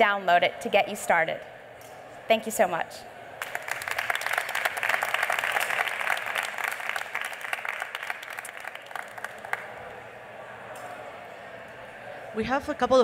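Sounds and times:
audience applauding: 0:03.4 - 0:10.1.

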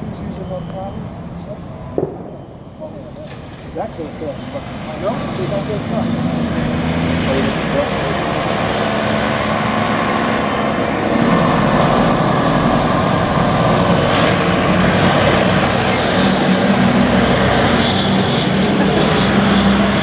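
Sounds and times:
diesel truck engine driving past: 0:00.0 - 0:20.0.

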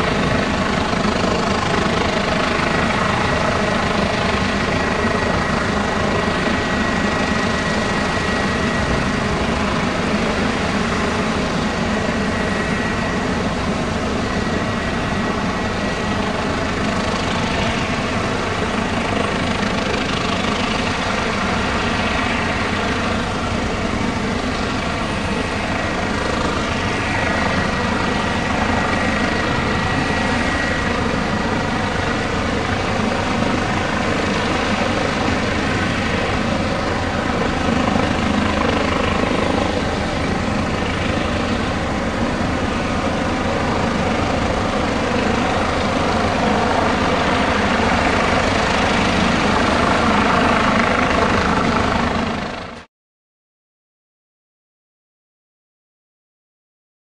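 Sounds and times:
helicopter rotor and turbines drone: 0:00.0 - 0:52.9.

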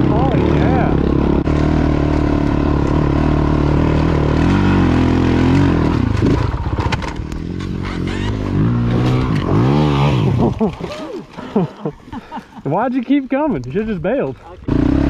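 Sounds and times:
motorcycle engine under load: 0:00.0 - 0:10.9, 0:14.6 - 0:15.0
motorcycle clattering over rocks: 0:06.0 - 0:09.6.

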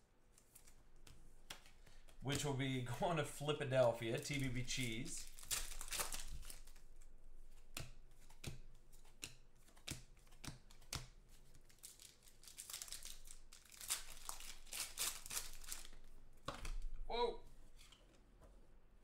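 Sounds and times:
cards clicking in hands: 0:00.4 - 0:02.5, 0:04.2 - 0:13.2
foil wrappers tearing and crinkling: 0:04.2 - 0:06.8, 0:11.7 - 0:16.0.

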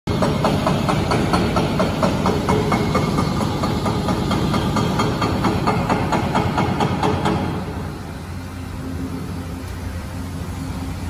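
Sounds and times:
rock breakers hammering: 0:00.1 - 0:07.8
diesel engines running: 0:00.1 - 0:11.0.

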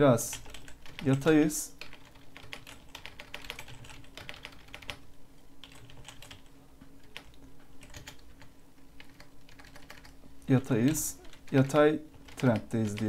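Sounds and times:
keyboard typing: 0:00.3 - 0:05.0, 0:05.6 - 0:10.2, 0:10.8 - 0:13.0.

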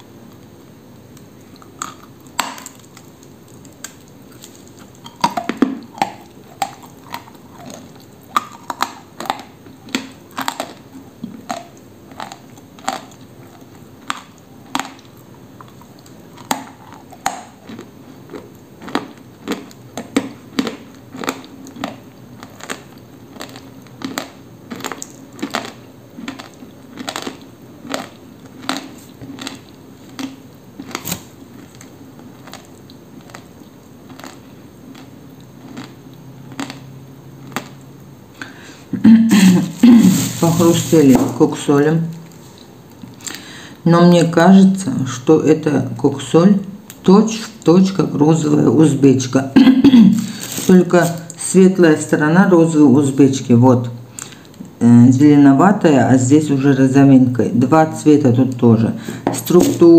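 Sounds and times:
dry clay crunching while chewed: 0:01.1 - 0:38.6, 0:50.2 - 0:51.4.

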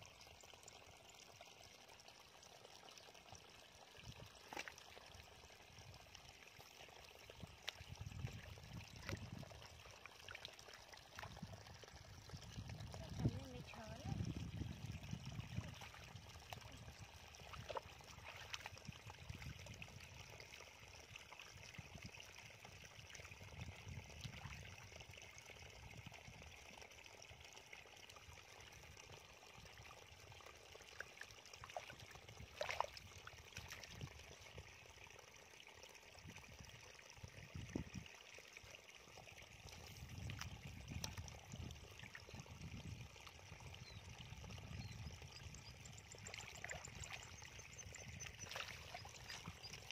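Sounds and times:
muddy water sloshing: 0:04.1 - 0:20.5, 0:30.8 - 0:34.8, 0:39.5 - 0:43.8, 0:44.4 - 0:49.9
sharp water splashes: 0:17.4 - 0:18.8, 0:31.6 - 0:34.1, 0:48.0 - 0:49.9.

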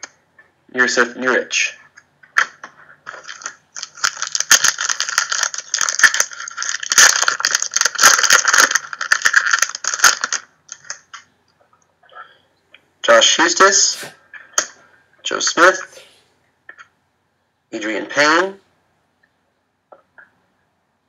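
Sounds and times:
foil wrapper crinkling and tearing: 0:02.4 - 0:11.2.

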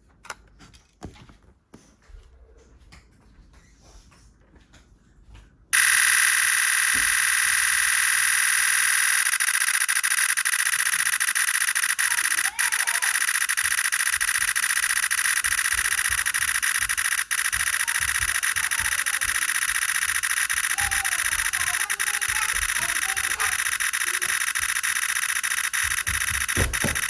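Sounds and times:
rapid camera shutter clicks: 0:05.8 - 0:27.0.

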